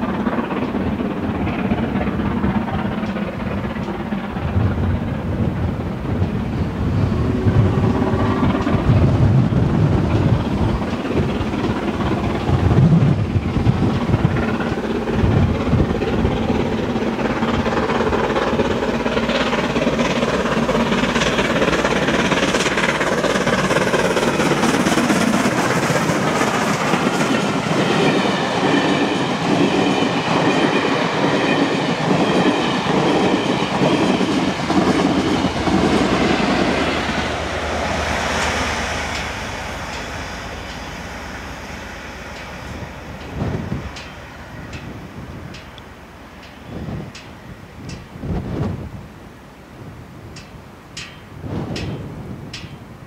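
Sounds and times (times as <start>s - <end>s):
steam locomotive passing: 0.0s - 53.0s
train wheels clattering over rail joints: 50.3s - 53.0s.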